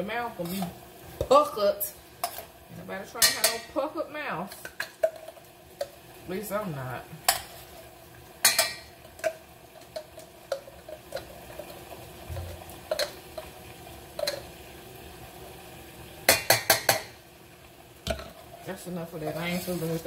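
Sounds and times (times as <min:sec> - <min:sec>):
spoon tapping saucepan: 0:03.2 - 0:03.7, 0:08.4 - 0:13.5, 0:14.2 - 0:14.5, 0:16.3 - 0:17.2.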